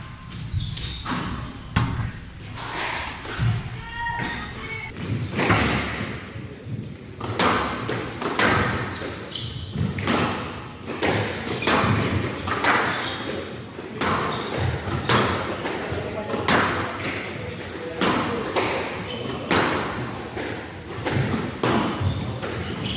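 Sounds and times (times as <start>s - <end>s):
squash ball cracks off walls: 5.0s - 6.4s, 7.2s - 22.8s.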